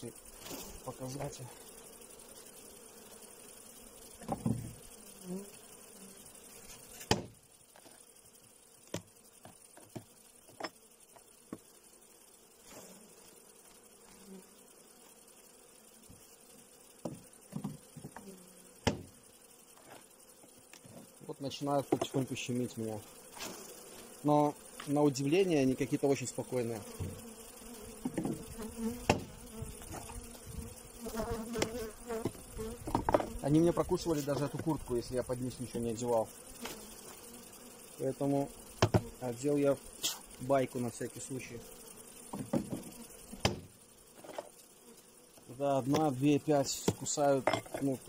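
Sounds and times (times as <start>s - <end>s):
honeybees humming: 0.0s - 48.0s.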